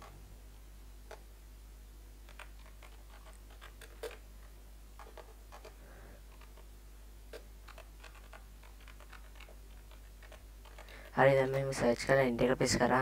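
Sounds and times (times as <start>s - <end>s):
steady low hum: 0.0s - 13.0s
computer keyboard keystrokes: 2.3s - 4.2s, 7.3s - 11.7s.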